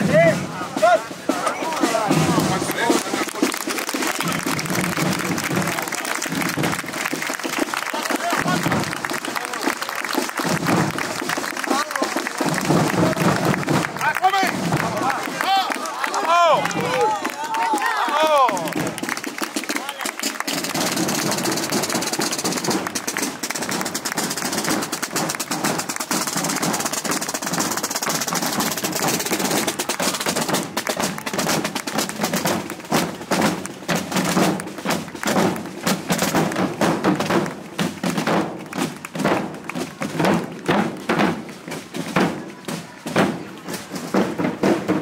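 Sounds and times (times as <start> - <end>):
marching drums: 0.0 - 45.0.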